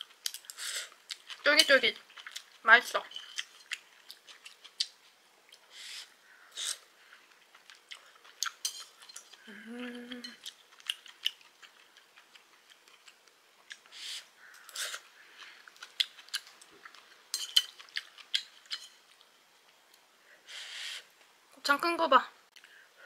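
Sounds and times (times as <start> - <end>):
chewing: 0.0 - 5.7, 6.6 - 20.1
utensils clicking against dishes: 8.6 - 9.3
person humming: 9.4 - 10.4.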